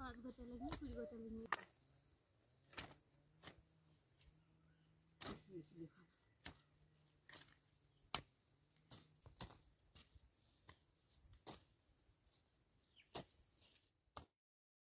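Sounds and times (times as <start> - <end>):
hand hoes chopping soil: 0.6 - 1.8, 2.6 - 4.4, 5.0 - 14.4.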